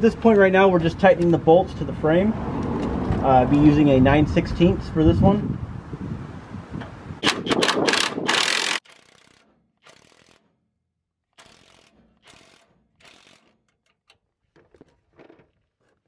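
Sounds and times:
cordless power driver: 7.2 - 10.4, 11.4 - 13.7
wrench ratcheting: 7.2 - 10.5, 11.4 - 14.2.

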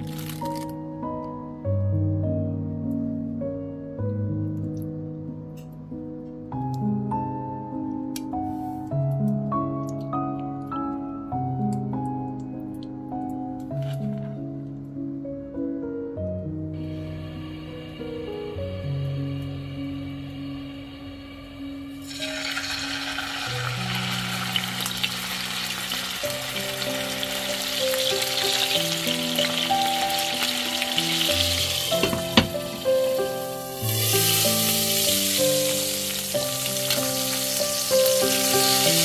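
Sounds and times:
background music: 0.0 - 39.0
chicken sizzling in frying pan: 21.8 - 39.0.

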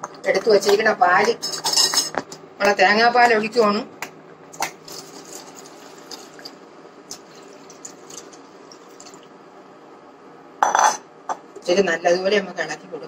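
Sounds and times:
liquid pouring into pot: 4.8 - 9.4.

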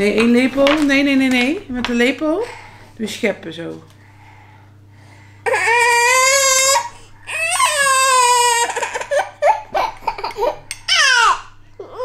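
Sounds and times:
toddler crying: 5.4 - 12.0.

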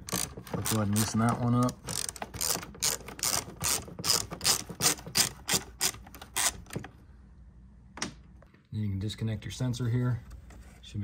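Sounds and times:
hand ratchet clicking: 0.0 - 6.8.

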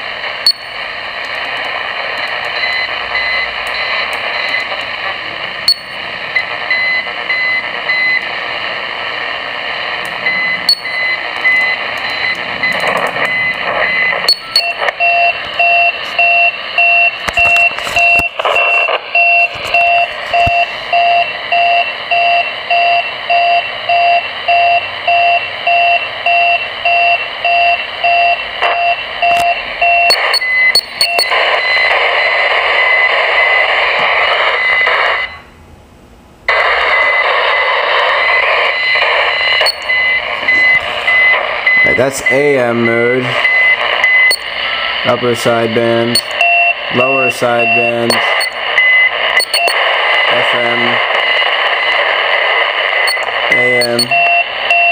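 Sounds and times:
radio band hiss: 0.0 - 22.7, 27.3 - 35.3, 36.5 - 54.7
short radio beeps: 0.4 - 0.9, 5.7 - 8.2, 10.2 - 33.2, 38.0 - 52.1, 52.9 - 54.9.

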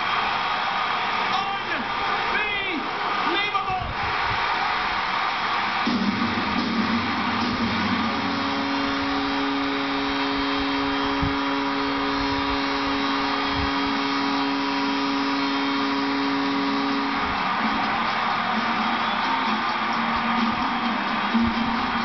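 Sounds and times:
arena crowd cheering: 0.0 - 22.0
steady low horn: 7.4 - 17.7.

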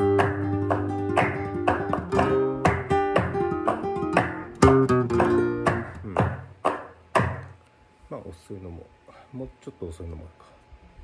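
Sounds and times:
flamenco guitar strokes: 0.0 - 7.0
hand claps: 0.0 - 7.6.

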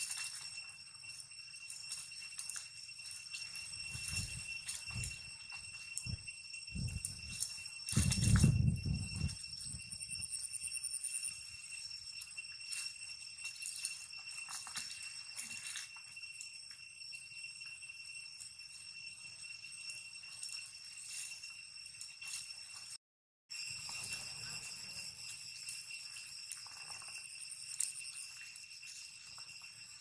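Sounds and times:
rustles and clicks in grass: 0.0 - 9.8, 12.7 - 16.5, 20.4 - 23.0, 23.7 - 30.0
insects droning: 0.0 - 30.0.

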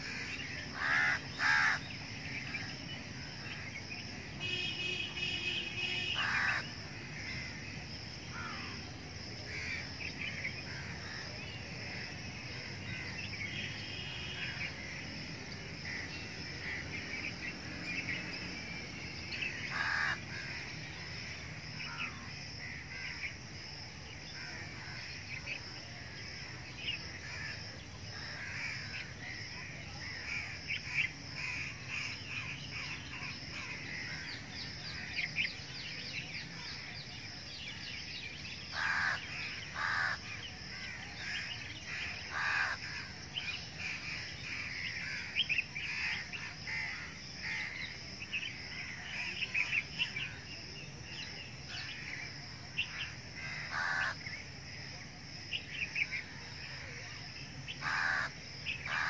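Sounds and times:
crow cawing: 0.0 - 2.0, 5.2 - 7.6, 8.3 - 8.7, 19.5 - 23.3, 38.7 - 43.1, 43.9 - 47.9, 52.8 - 54.2, 57.8 - 59.0
birds chirping: 0.0 - 59.0.

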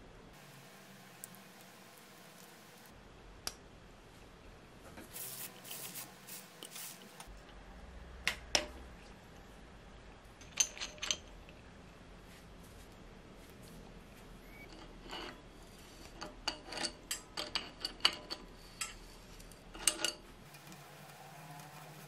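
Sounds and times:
tools scraping and clinking on metal: 10.4 - 11.6, 14.4 - 22.0.

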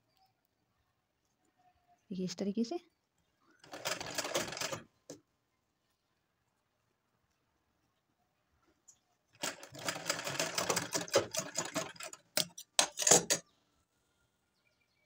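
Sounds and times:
sewing machine stitching: 3.6 - 4.8, 9.4 - 13.4.

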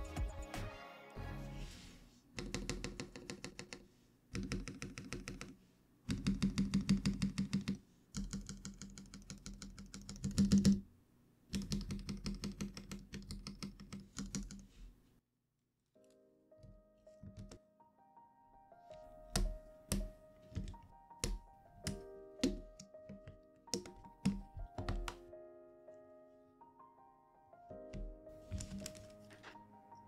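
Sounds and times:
mechanical keyboard keystrokes: 19.3 - 25.2.

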